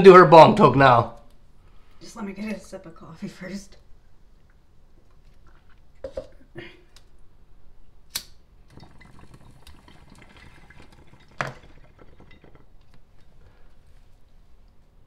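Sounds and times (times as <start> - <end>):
lighter flicked: 8.1 - 8.4
loud sharp click: 8.1 - 8.4
water bong bubbling: 8.7 - 13.3.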